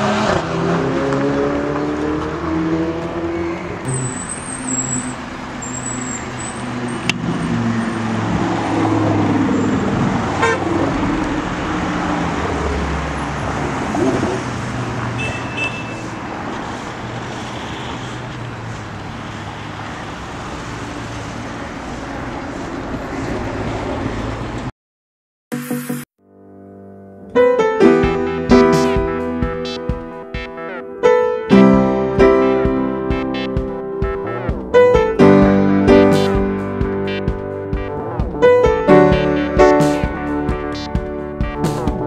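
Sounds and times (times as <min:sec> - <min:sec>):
sports car engines revving: 0:00.0 - 0:15.2
traffic noise: 0:00.0 - 0:24.7, 0:27.7 - 0:42.0
car horn blast: 0:10.4 - 0:10.8, 0:15.2 - 0:16.1.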